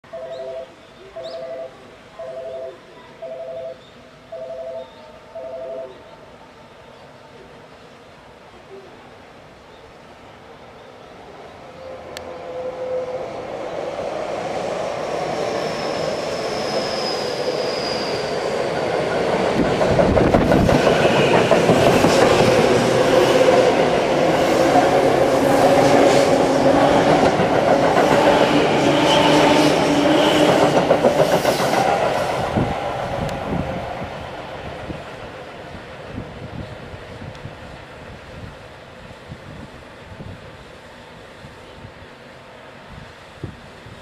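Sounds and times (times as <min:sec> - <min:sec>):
train hum: 0:00.0 - 0:44.0
train wheels clattering over joints: 0:19.0 - 0:22.8.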